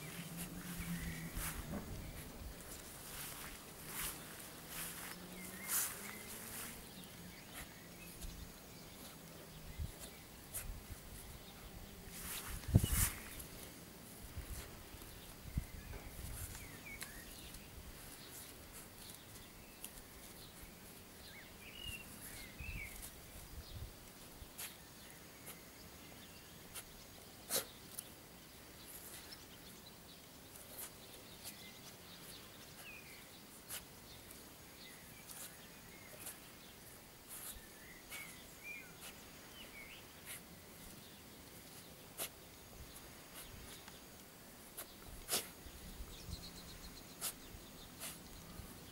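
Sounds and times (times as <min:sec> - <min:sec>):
dog sniffing: 0:27.5 - 0:27.7, 0:42.2 - 0:42.4, 0:44.7 - 0:45.6, 0:47.2 - 0:48.3.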